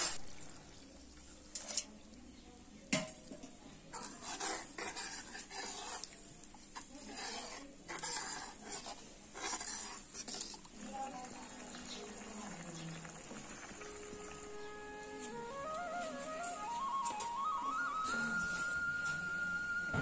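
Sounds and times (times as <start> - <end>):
ladle scraping iron pan: 3.9 - 6.1, 6.8 - 10.6.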